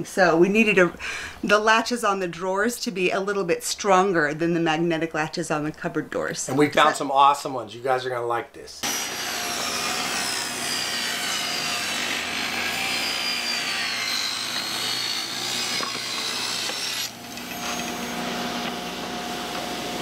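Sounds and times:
high whine of saw blade: 0:08.8 - 0:20.0
table saw cutting wood: 0:08.8 - 0:20.0.

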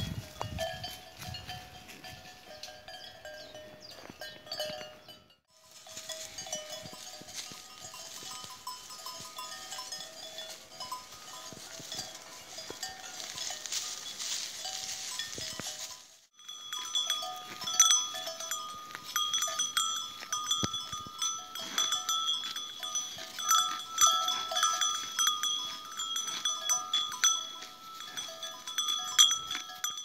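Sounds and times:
animal bells clanking: 0:00.0 - 0:30.0.

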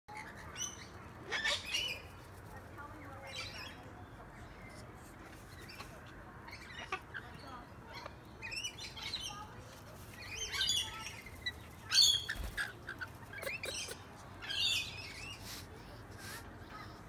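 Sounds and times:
wings fluttering: 0:09.7 - 0:13.9.

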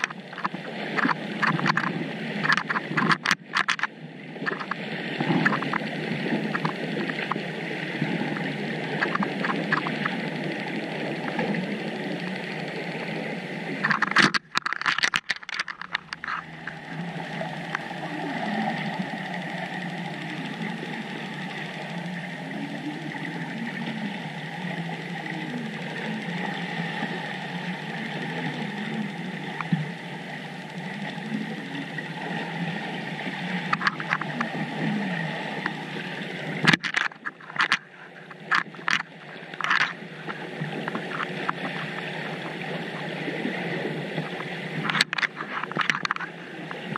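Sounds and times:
sharp crackles and knocks: 0:00.0 - 0:10.3, 0:13.8 - 0:19.0, 0:33.6 - 0:35.0, 0:36.6 - 0:42.7, 0:44.2 - 0:46.9
faint wavering hum: 0:03.9 - 0:46.9
underwater hiss: 0:16.6 - 0:30.4.

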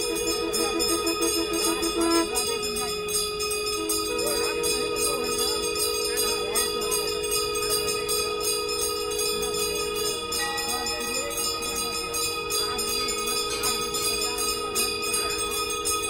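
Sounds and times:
conch shells blown: 0:00.0 - 0:05.2
temple bells ringing: 0:00.0 - 0:16.0.

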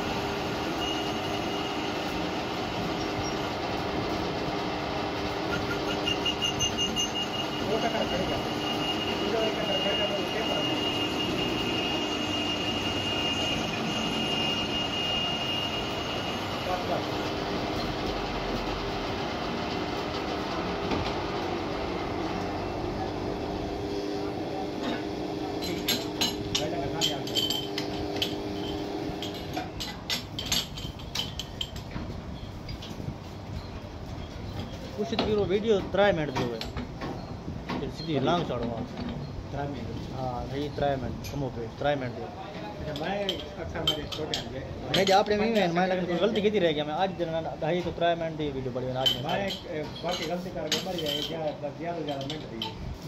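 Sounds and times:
high whine of cutting: 0:00.0 - 0:03.6, 0:05.1 - 0:18.0, 0:21.1 - 0:29.6
metal lathe humming: 0:00.0 - 0:29.6.

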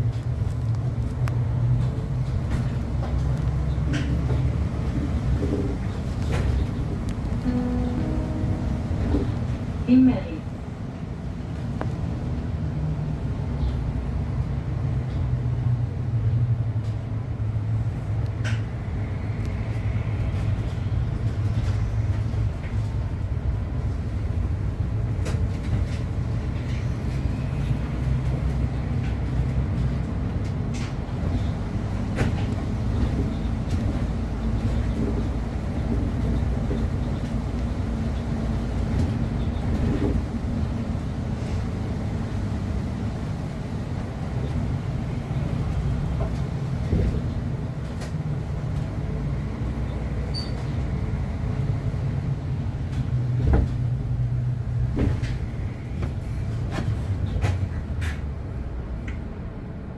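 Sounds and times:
interior rattles and knocks: 0:00.0 - 0:07.3, 0:52.9 - 0:58.6
bus engine and road rumble: 0:00.0 - 0:59.9.

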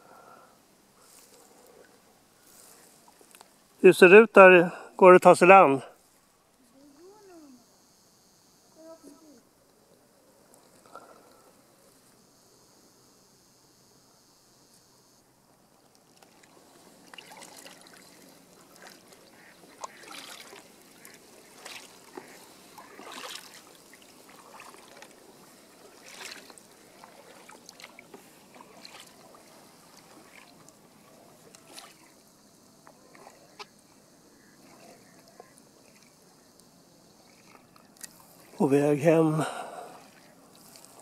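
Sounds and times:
paddle splashing water: 0:01.0 - 0:03.6, 0:15.7 - 0:41.0
water trickling: 0:15.8 - 0:41.0.

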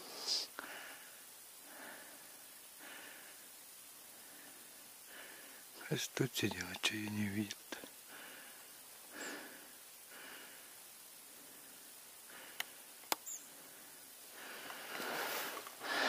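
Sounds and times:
person breathing: 0:00.0 - 0:05.8, 0:08.0 - 0:12.8, 0:13.5 - 0:16.0
light clicks: 0:12.5 - 0:13.3
rustling through dry grass: 0:12.8 - 0:16.0.

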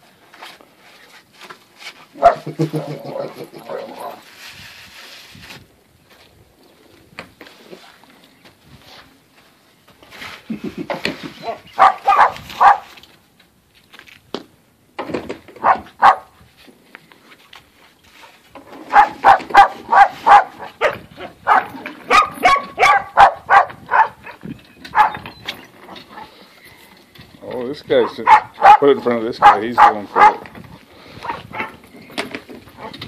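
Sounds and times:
puppies yapping: 0:11.2 - 0:12.8, 0:18.9 - 0:26.4.

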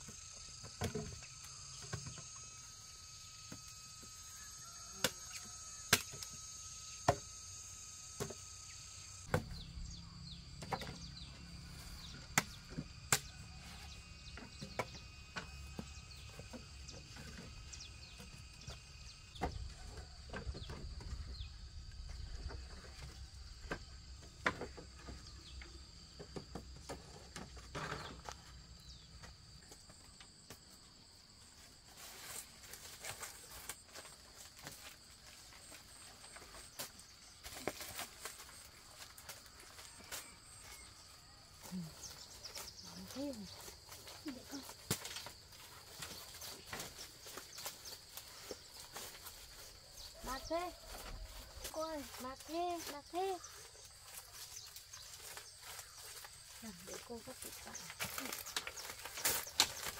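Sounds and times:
insects chirring: 0:00.0 - 0:59.9
bamboo and branches snapping: 0:05.0 - 0:06.3, 0:12.3 - 0:13.6, 0:43.6 - 0:49.2, 0:56.9 - 0:59.9.

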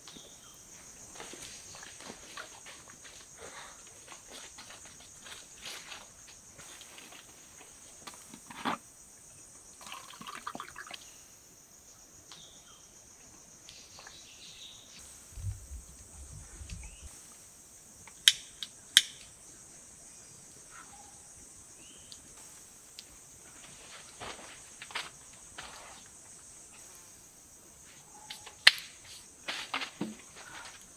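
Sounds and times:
insects droning: 0:00.0 - 0:30.9
sharp clicks: 0:18.1 - 0:19.3.

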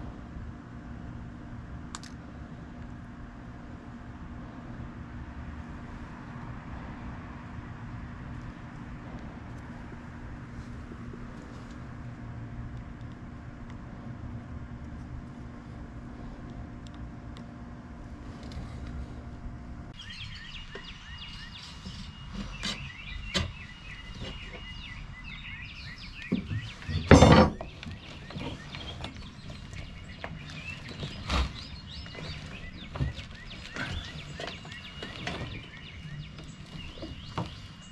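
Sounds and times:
low steady hum: 0:00.0 - 0:37.9
birds chirping: 0:19.9 - 0:37.9
tire lever scraping rim: 0:26.2 - 0:37.6.

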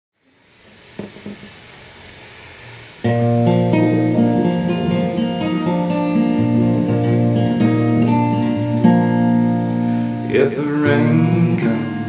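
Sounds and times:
recording hiss: 0:00.2 - 0:12.0
acoustic guitar: 0:02.6 - 0:12.0.

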